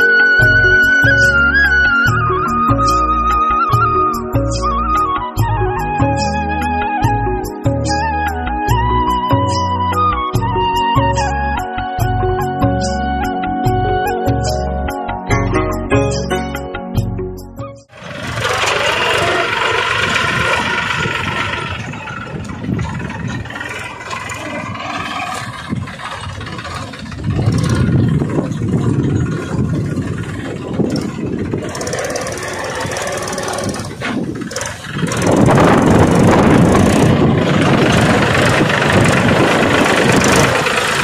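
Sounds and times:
small tractor engine running: 17.9s - 41.0s.

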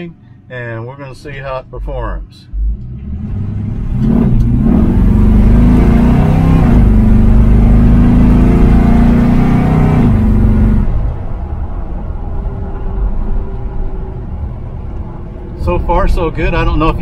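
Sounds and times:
engine revving: 2.5s - 11.2s.

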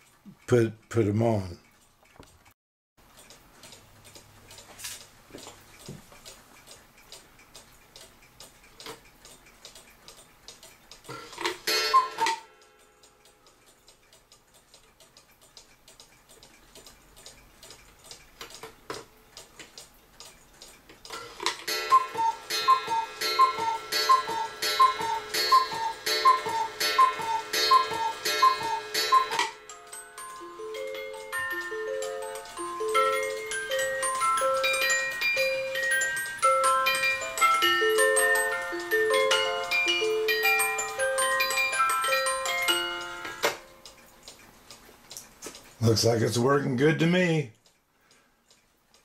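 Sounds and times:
clock ticking: 0.0s - 49.0s
cuckoo clock call: 11.0s - 14.0s, 21.1s - 44.0s.

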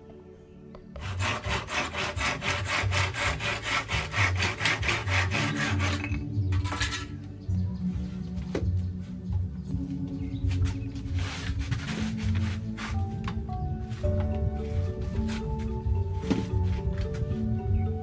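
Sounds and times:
hand saw cutting bamboo: 1.0s - 7.0s, 11.2s - 13.2s.

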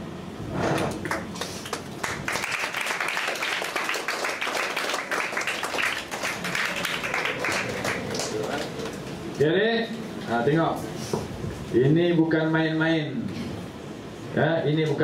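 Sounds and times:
audience clapping: 0.8s - 9.3s.

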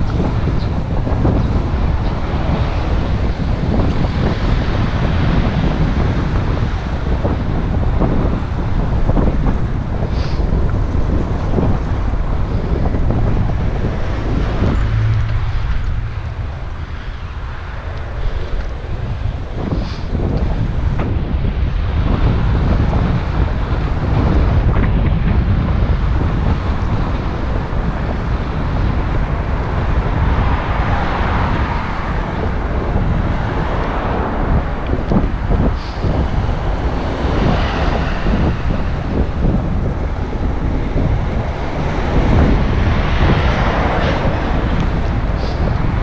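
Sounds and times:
road vehicles: 0.0s - 46.0s
wind buffeting microphone: 0.0s - 46.0s.

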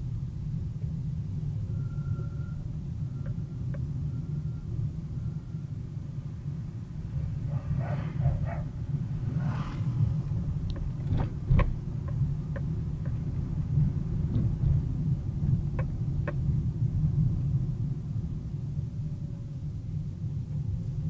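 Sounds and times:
car engine and tyres rumbling: 0.0s - 21.0s.

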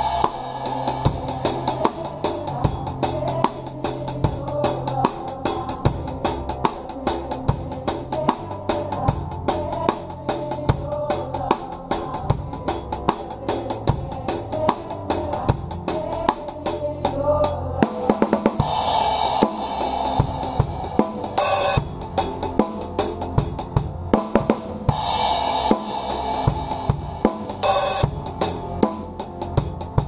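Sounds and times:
cymbal crash: 0.0s - 2.4s, 18.6s - 23.6s, 24.9s - 28.6s
drum kit playing a shuffle: 0.0s - 17.2s, 17.8s - 30.0s
band music: 0.0s - 30.0s.

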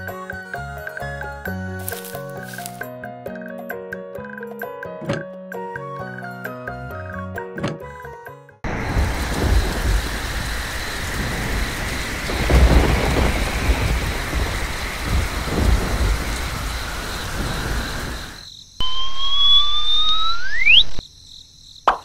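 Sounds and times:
heavy rain: 8.6s - 18.4s
thunder: 8.7s - 18.4s
rising whistle: 17.6s - 21.0s.

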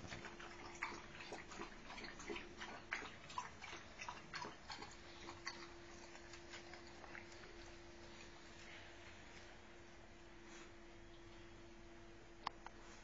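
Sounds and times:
dog lapping water: 0.0s - 8.2s
faint steady hum: 0.0s - 13.0s.

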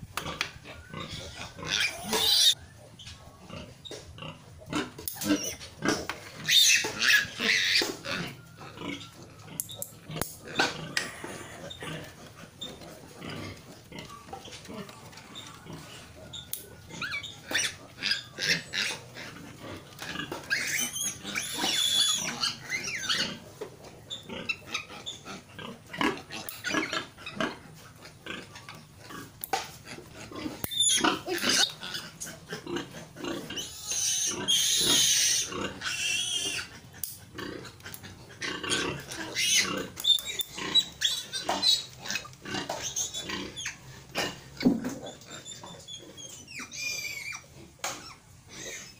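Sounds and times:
piglet squealing: 0.7s - 2.6s, 6.4s - 9.8s, 16.3s - 19.1s, 20.4s - 23.4s, 30.4s - 36.9s, 38.4s - 43.8s, 45.0s - 48.9s.

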